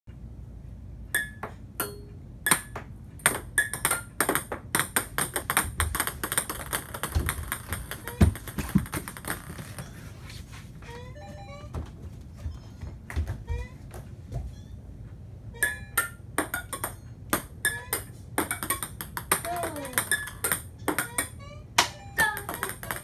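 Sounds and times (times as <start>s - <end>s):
ping pong balls bouncing on floor: 1.1s - 9.9s, 13.1s - 14.4s, 15.6s - 23.0s.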